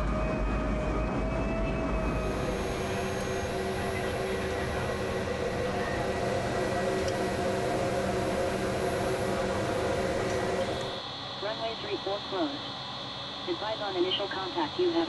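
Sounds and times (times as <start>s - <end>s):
steady humming tones: 0.0s - 15.0s
hiss of airflow and machinery: 2.2s - 11.0s.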